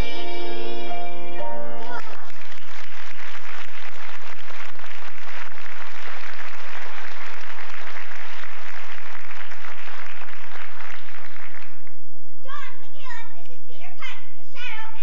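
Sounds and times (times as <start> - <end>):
audience applauding: 1.8 - 12.0.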